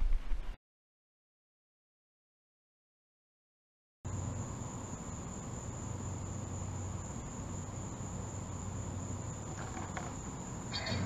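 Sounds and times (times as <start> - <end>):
crickets droning: 4.1 - 11.0.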